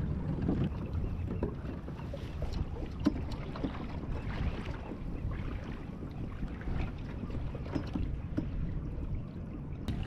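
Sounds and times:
water sloshing against hull: 0.0 - 10.0
wind rumble on microphone: 0.0 - 10.0
small knocks and ticks: 2.9 - 3.8, 7.6 - 8.6.

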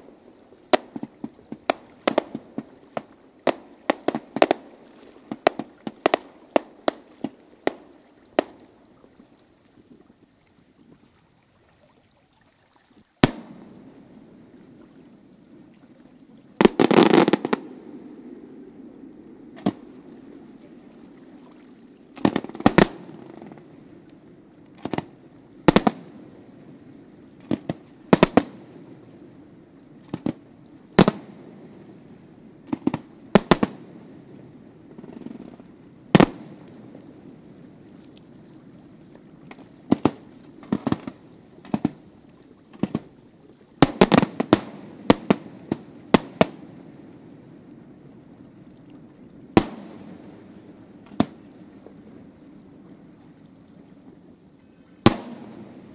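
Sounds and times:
fireworks crackling pops: 0.0 - 8.8, 13.2 - 13.9, 16.6 - 17.7, 19.6 - 20.3, 22.2 - 26.2, 27.4 - 28.8, 30.0 - 31.4, 32.6 - 34.0, 34.9 - 36.9, 39.4 - 43.2, 43.8 - 46.8, 49.5 - 52.0, 55.0 - 55.9.

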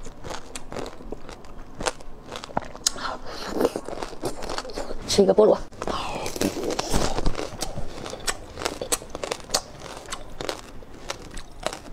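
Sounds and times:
crunching frozen ice cream bar: 0.0 - 5.0, 5.8 - 11.9.

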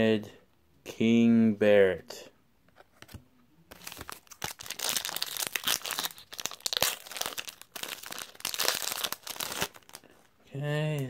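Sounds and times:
wrapper tearing and crinkling: 3.7 - 10.0.

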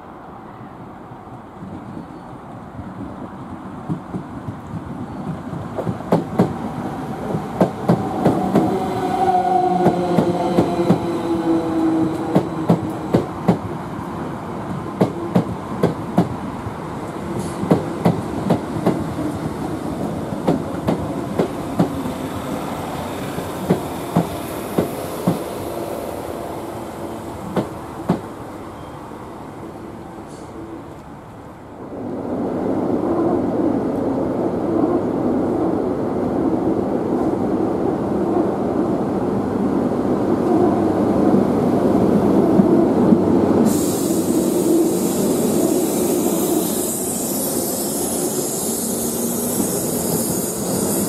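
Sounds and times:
train falling whine: 5.8 - 16.4, 17.0 - 31.0, 43.5 - 51.0
train wheels clacking over rail joints: 17.4 - 22.2, 23.4 - 25.5, 27.5 - 28.3.

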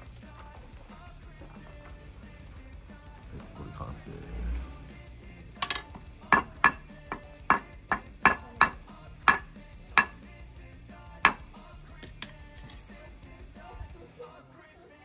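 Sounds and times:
small hammer tapping metal: 5.6 - 10.2, 12.0 - 12.8.

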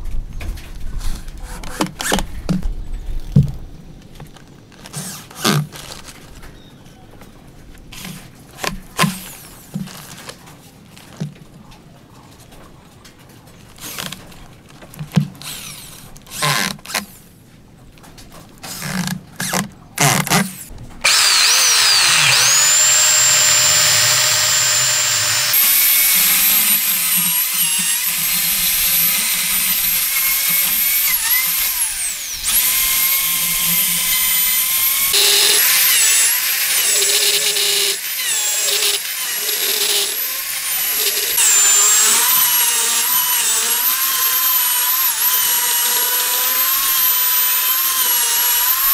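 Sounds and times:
power drill driving screws: 15.4 - 17.0, 20.2 - 48.9.

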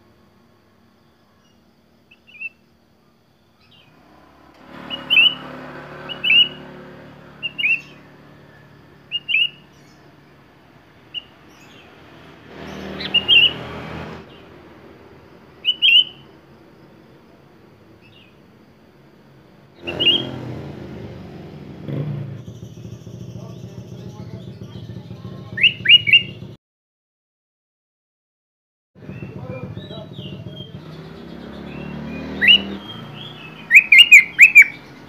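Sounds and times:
bird chirping: 1.3 - 14.5, 15.6 - 16.4, 18.0 - 18.5, 19.8 - 20.6, 21.9 - 26.6, 29.0 - 35.0.

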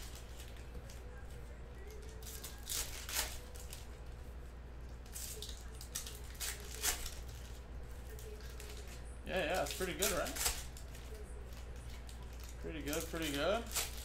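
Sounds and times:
cards rustling and crinkling: 4.9 - 14.0.

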